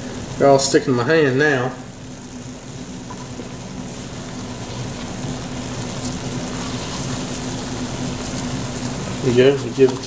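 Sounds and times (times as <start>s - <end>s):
food sizzling in a wok: 0.0s - 10.0s.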